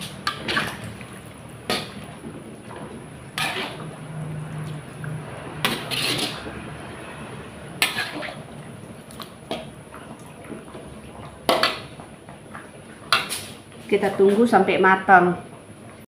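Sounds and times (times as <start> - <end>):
liquid sloshing: 0.0 - 13.6
metal spatula scraping a wok: 3.3 - 4.0, 5.5 - 6.7, 7.8 - 8.5.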